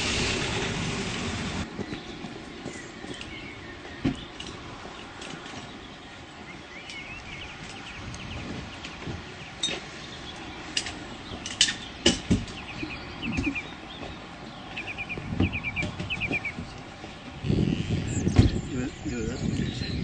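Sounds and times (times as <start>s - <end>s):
footsteps on pavement: 1.6s - 17.4s
small bird chirping: 11.3s - 16.7s.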